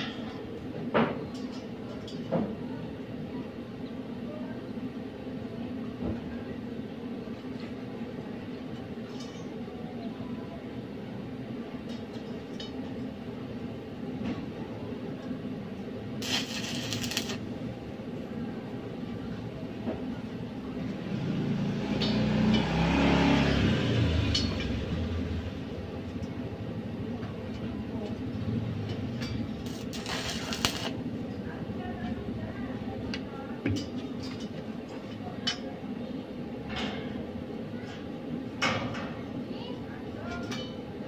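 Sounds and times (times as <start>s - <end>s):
steady low hum: 14.9s - 20.6s, 28.2s - 32.6s
vehicle engine passing: 21.2s - 24.6s.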